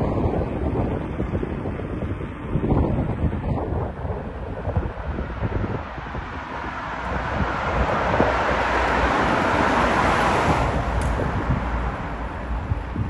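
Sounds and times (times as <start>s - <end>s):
wind rumble on microphone: 0.0s - 13.0s
vehicle passing: 3.4s - 13.0s.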